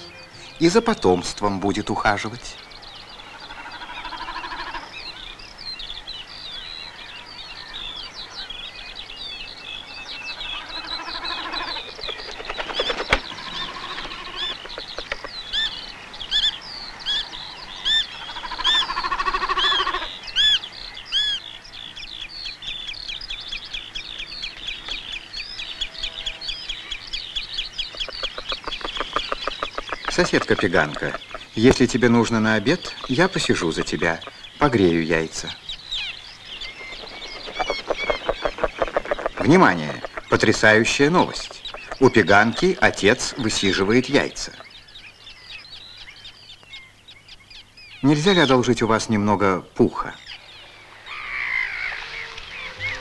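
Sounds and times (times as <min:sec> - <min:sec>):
high bird chirps: 0:00.0 - 0:49.1, 0:50.0 - 0:53.0
low drawn-out bird calls: 0:00.0 - 0:53.0
fast rattling pulses: 0:36.6 - 0:40.3.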